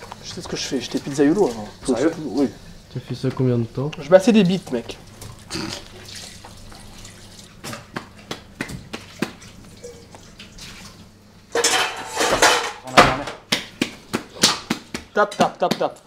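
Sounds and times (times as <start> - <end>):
dough squelching and patting: 7.4 - 11.0, 13.4 - 16.0.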